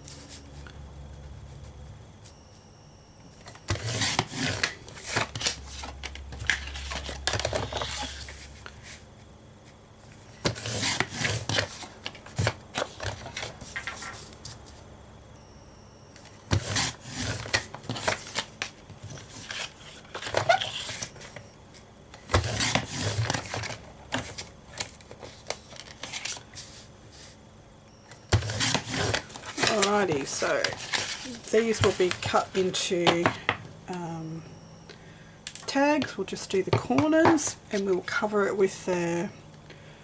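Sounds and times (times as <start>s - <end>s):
card sheets sliding and shuffling: 0.0s - 0.6s, 3.4s - 9.0s, 9.6s - 14.8s, 16.2s - 27.4s, 28.3s - 33.0s.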